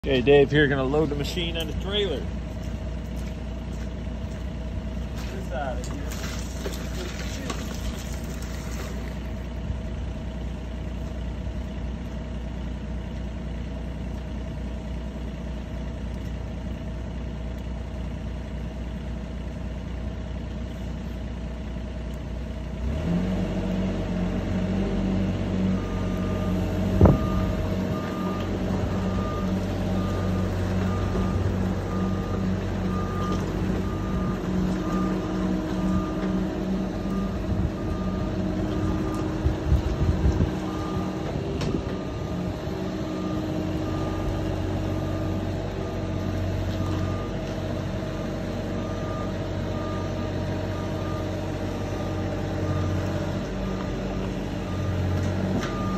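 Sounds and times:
excavator engine: 0:00.0 - 0:55.9
travel alarm beeping: 0:25.8 - 0:36.2.

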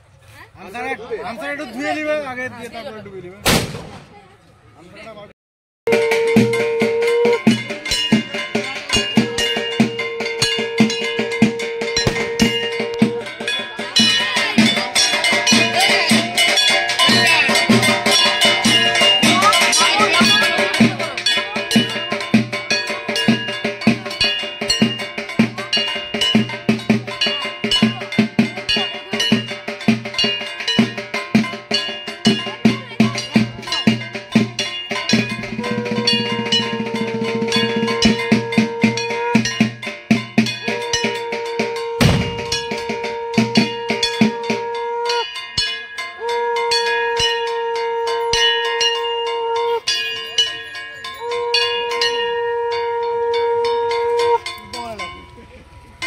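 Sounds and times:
sharp bang: 0:03.4 - 0:04.3, 0:12.0 - 0:12.8, 0:42.0 - 0:42.8
conch shells blown: 0:05.9 - 0:13.6, 0:35.3 - 0:45.5, 0:46.1 - 0:50.0, 0:51.1 - 0:54.6
metal bell or gong strikes: 0:05.9 - 0:56.0
ritual drumming: 0:05.9 - 0:56.0.

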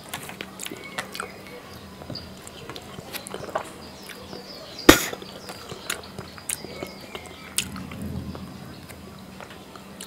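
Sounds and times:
wet chewing smacks: 0:00.1 - 0:01.6, 0:02.4 - 0:07.8
loud sharp crack: 0:04.9 - 0:05.3.

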